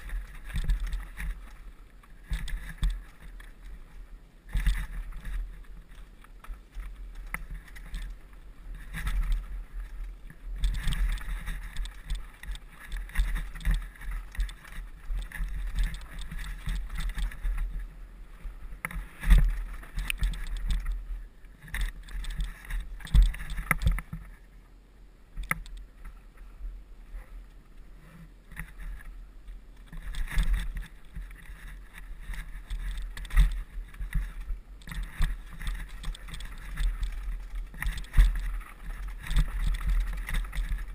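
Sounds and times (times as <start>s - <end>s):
bike knocks and rattles: 0.0s - 1.6s, 2.2s - 3.6s, 4.5s - 8.2s, 8.8s - 17.8s, 18.8s - 21.0s, 21.6s - 24.3s, 29.8s - 40.9s
mountain bike rumbling on dirt trail: 0.0s - 24.5s, 28.0s - 40.9s.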